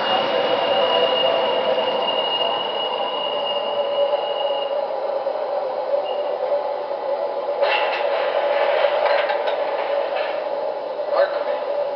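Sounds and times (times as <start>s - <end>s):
rattling clatter of train: 0.0s - 4.8s, 7.4s - 11.9s.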